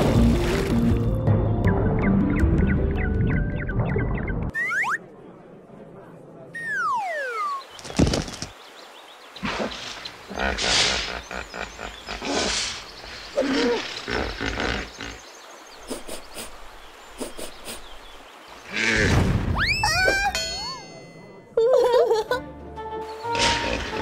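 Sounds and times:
rough animal calls: 9.4 - 15.3.

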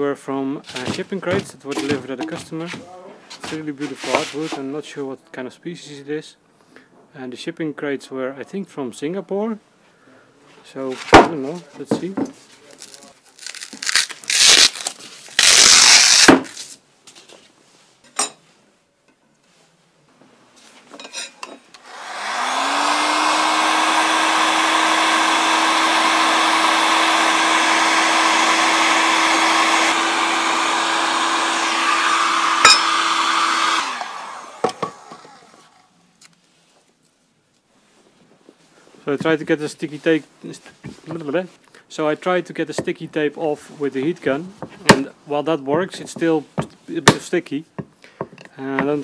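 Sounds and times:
handling noises: 0.6 - 4.6
heat gun blowing hiss: 15.4 - 16.4, 21.8 - 35.8.

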